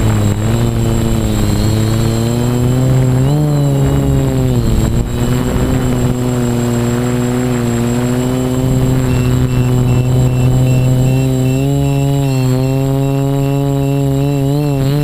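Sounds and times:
quadcopter propellers humming: 0.0 - 15.0.

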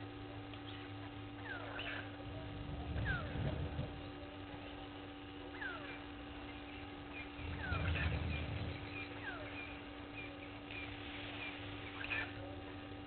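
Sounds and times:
steady low hum: 0.0 - 13.0
low rumble: 2.0 - 11.7.

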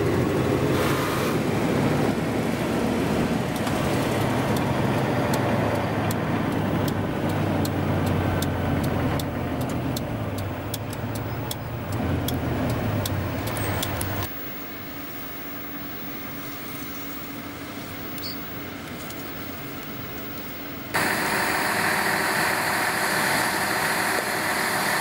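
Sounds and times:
truck diesel engine running: 0.0 - 14.3, 20.7 - 25.0
quick ticking: 4.5 - 14.3.

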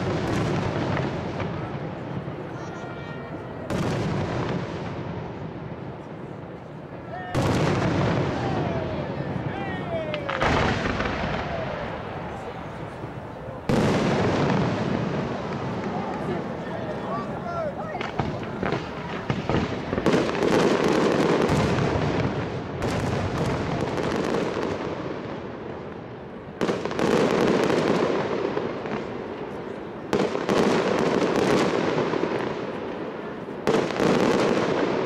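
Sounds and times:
crackling rumbling tail: 7.4 - 29.5.

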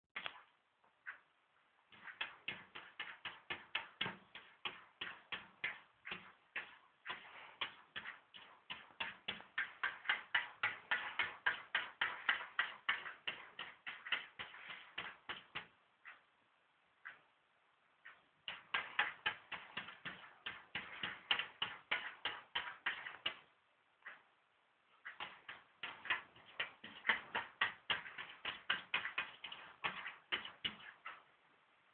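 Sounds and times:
cat paws tapping on glass: 18.0 - 23.4, 25.0 - 31.2.

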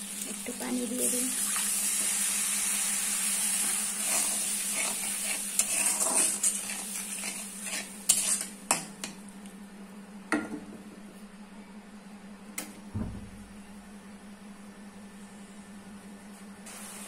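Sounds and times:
food sizzling: 0.0 - 8.7
spatula scraping pan: 3.9 - 8.8.

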